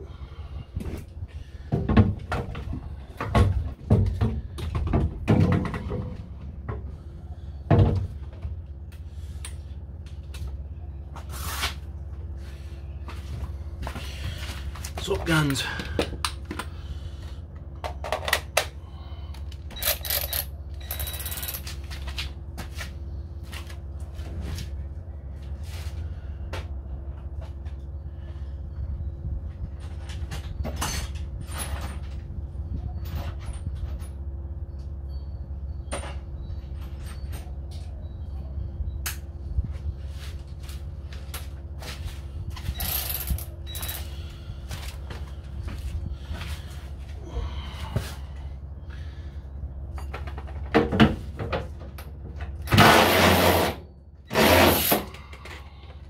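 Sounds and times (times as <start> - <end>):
steady low hum: 0.0 - 56.0
tools and metal parts clanking: 19.4 - 22.8, 29.7 - 39.0, 40.6 - 46.6.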